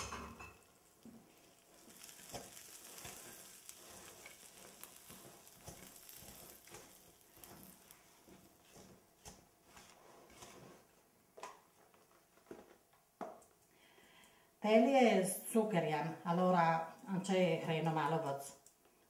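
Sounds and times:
wooden spoon scraping nuts in bowl: 1.8s - 10.9s.

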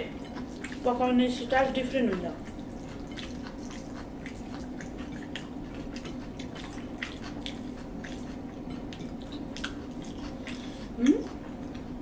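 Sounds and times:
wet chewing and lip-smacking: 0.0s - 0.9s, 1.9s - 12.0s
steady low hum: 0.0s - 12.0s.

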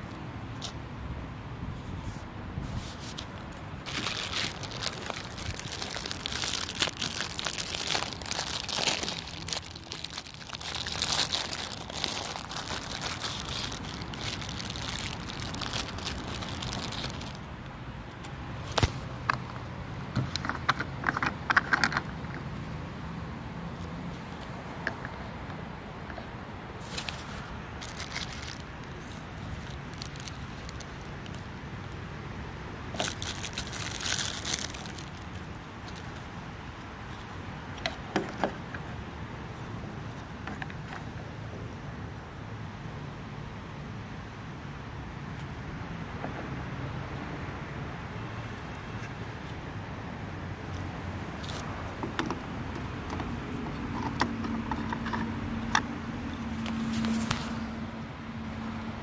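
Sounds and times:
plastic bag crinkling: 3.8s - 17.4s, 27.8s - 31.5s, 32.9s - 36.0s.

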